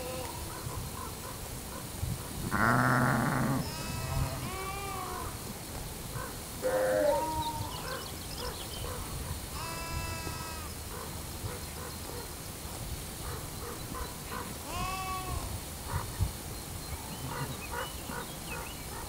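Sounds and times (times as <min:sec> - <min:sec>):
sheep bleating: 0:02.5 - 0:05.3, 0:09.6 - 0:10.7, 0:14.7 - 0:15.5.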